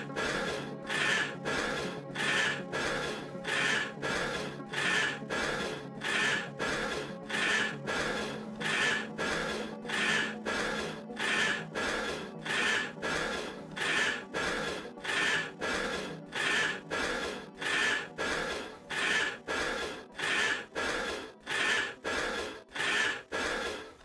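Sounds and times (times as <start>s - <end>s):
rhythmic rasping swishes: 0.0s - 24.0s.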